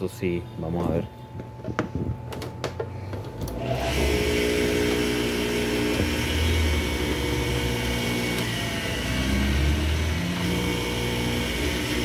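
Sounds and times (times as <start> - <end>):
juicer motor humming: 3.3 - 12.0.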